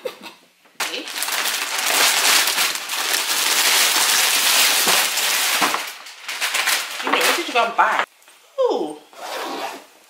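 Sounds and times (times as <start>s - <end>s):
wrapping paper tearing and crumpling: 0.8s - 8.0s.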